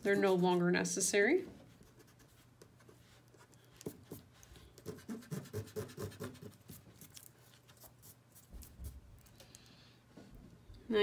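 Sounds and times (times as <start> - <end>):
eraser rubbing on paper: 1.8 - 6.8.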